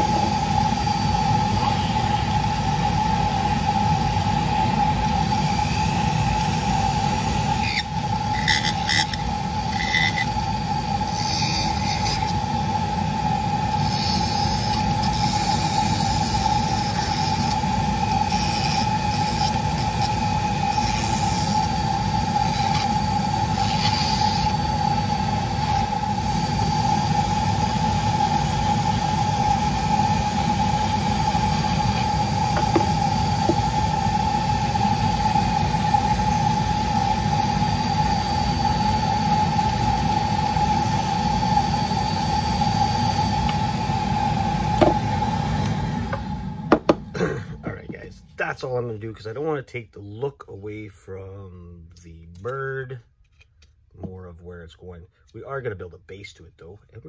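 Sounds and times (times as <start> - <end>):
rotary carving tool whining: 0.0 - 47.1.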